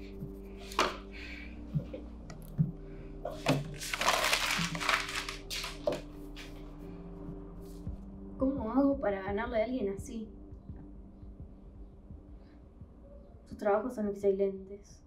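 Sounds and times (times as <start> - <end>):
paper being crumpled: 3.3 - 6.1.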